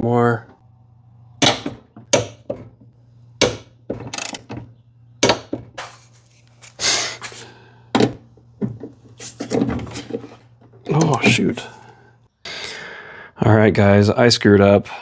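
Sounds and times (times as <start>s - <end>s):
ratchet wrench clicking: 4.2s - 4.4s.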